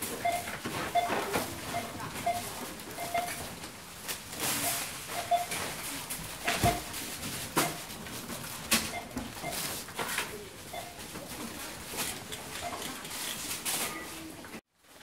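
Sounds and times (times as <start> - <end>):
barcode scanner beeps: 0.2 - 3.4, 4.6 - 5.7, 10.7 - 11.0.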